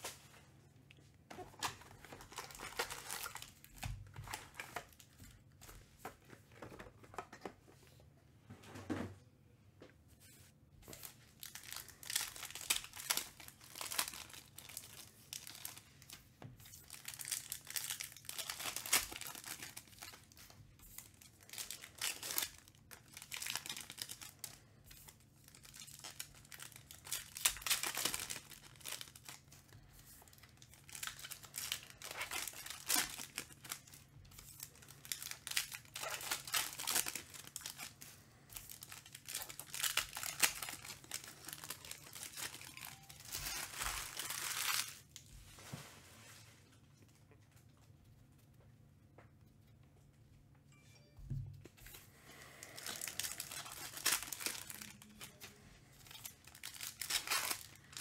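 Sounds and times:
foil wrappers crinkling and tearing: 0:01.3 - 0:05.5, 0:10.9 - 0:45.3, 0:52.2 - 0:58.0.

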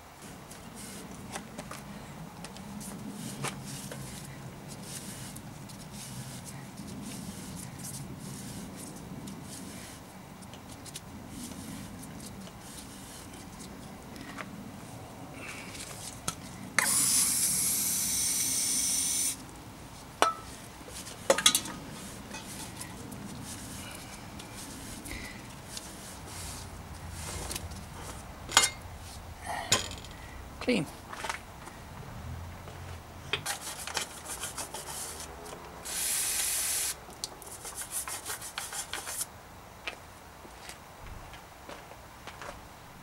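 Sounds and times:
aerosol spray hiss: 0:16.8 - 0:19.4, 0:35.9 - 0:37.0
stiff brush scrubbing metal: 0:20.3 - 0:29.3, 0:33.4 - 0:36.5, 0:37.4 - 0:39.3.

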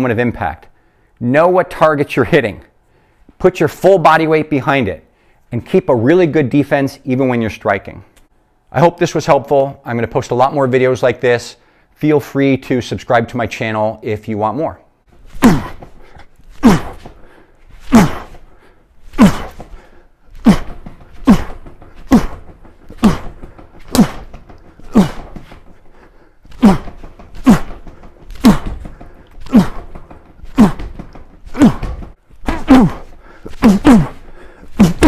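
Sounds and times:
fists punching training dummy: 0:15.2 - 0:35.0.

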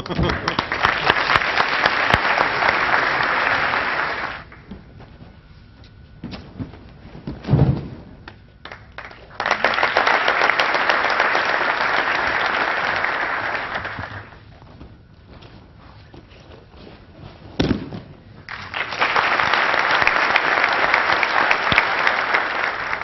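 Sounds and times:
audience applause: 0:00.0 - 0:04.6, 0:08.6 - 0:14.4, 0:18.5 - 0:23.0
person thudding onto padded mats: 0:06.2 - 0:08.1.

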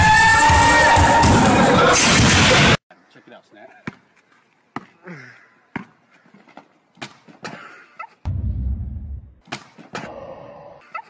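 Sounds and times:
loud low rumble: 0:08.3 - 0:09.4.

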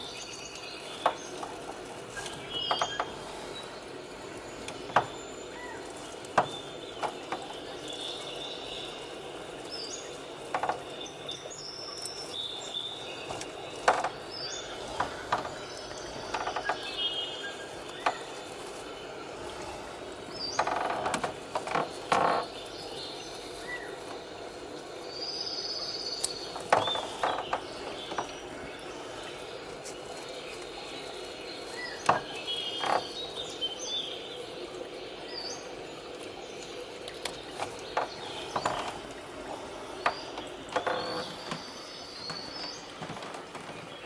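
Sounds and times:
leaf rustling: 0:00.0 - 0:11.3, 0:12.0 - 0:35.8
steady low hiss: 0:00.0 - 0:44.0.

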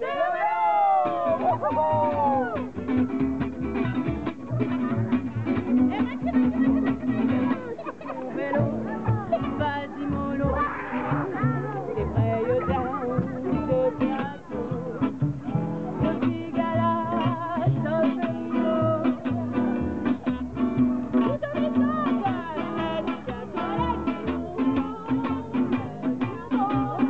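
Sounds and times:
strummed guitar: 0:00.8 - 0:27.0
woman singing: 0:06.8 - 0:15.2, 0:15.9 - 0:27.0.

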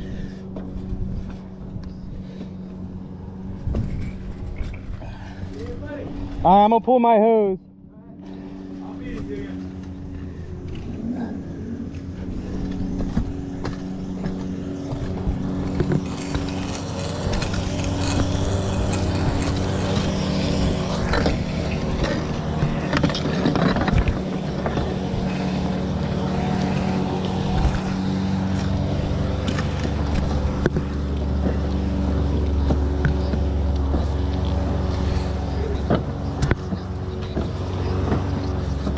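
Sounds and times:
engine running: 0:00.0 - 0:38.9
hose scraping on roof tiles: 0:12.2 - 0:38.9.

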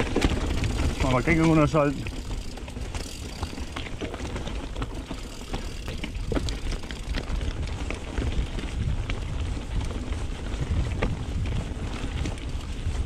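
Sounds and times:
chain and frame rattling: 0:00.0 - 0:07.6
bike tyre noise on trail: 0:00.0 - 0:13.0.

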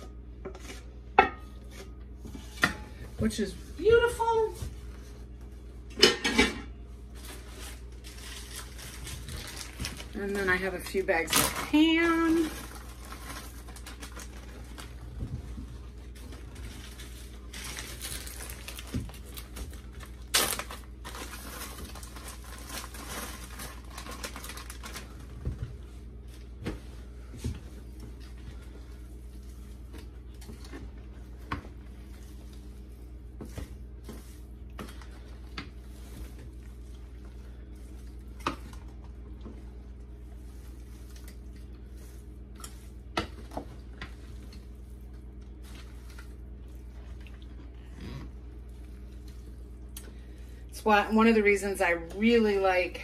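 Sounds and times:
steady low hum: 0:00.0 - 0:53.0
plastic bags crinkling: 0:07.1 - 0:25.8.

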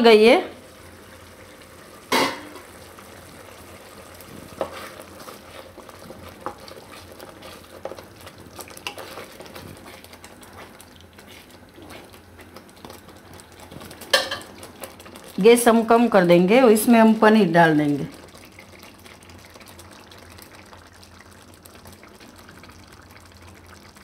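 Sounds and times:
thick puree bubbling in a pan: 0:00.1 - 0:24.0
spoon scraping and tapping a pan: 0:14.1 - 0:14.5.

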